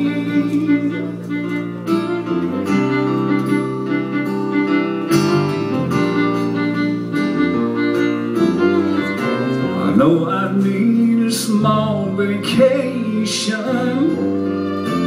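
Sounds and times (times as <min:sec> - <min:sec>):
fiddle playing melody: 0:00.0 - 0:10.3, 0:13.9 - 0:15.0
acoustic guitar strumming: 0:00.0 - 0:15.0.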